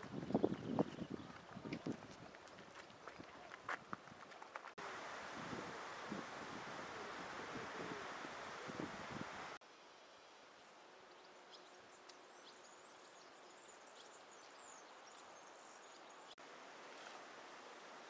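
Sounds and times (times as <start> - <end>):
small birds chirping: 0.0 - 3.7, 10.6 - 16.4
wind buffeting microphone: 0.0 - 4.3, 5.2 - 9.6.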